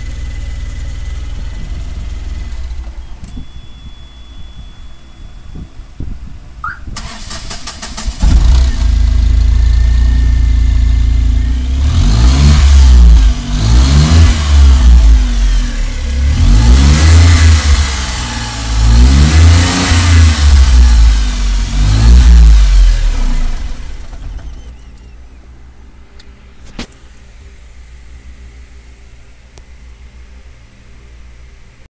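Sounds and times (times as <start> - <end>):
truck engine idling and revving: 0.0 - 4.9, 6.6 - 27.3
low steady hum: 0.0 - 11.8, 20.5 - 31.9
engine starter cranking: 6.9 - 8.9.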